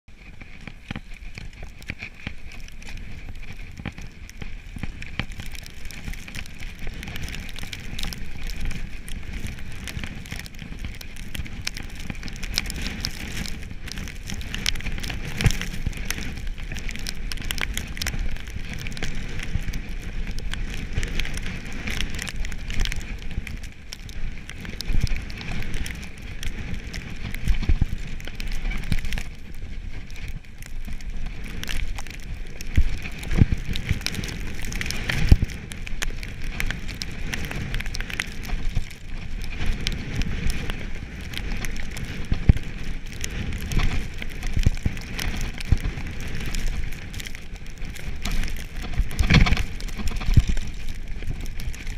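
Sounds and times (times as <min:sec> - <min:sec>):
tyres crackling over snow and stones: 0:00.0 - 0:51.9
bike rattling: 0:00.1 - 0:51.9.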